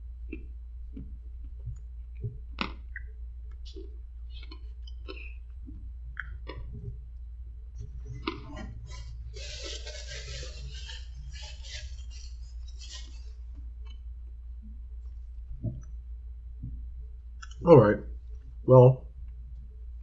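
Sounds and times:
low steady hum: 0.0s - 20.0s
plastic spoon scraping paper cup: 8.2s - 13.3s.

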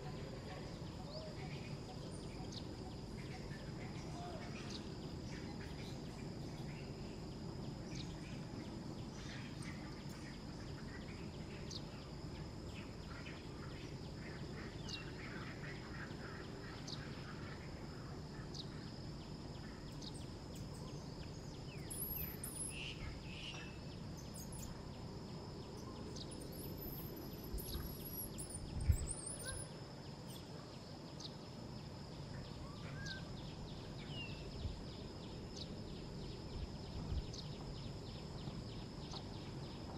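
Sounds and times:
insect drone: 0.0s - 39.9s
low background noise: 0.0s - 39.9s
bird chirps: 19.8s - 24.8s, 25.6s - 31.4s.

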